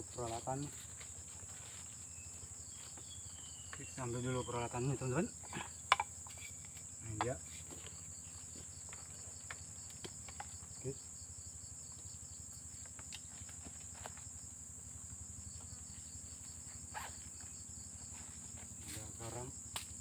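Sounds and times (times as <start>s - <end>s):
insects trilling: 0.0s - 20.0s.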